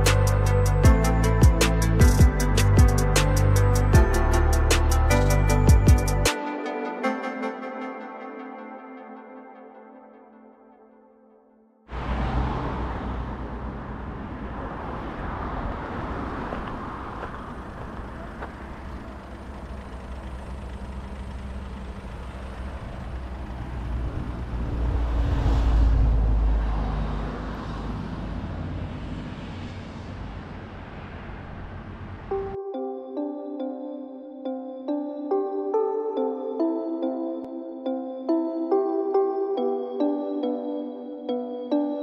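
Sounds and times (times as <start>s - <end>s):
low road rumble: 0.0s - 6.3s, 11.9s - 32.6s
vehicle passing: 11.9s - 32.6s.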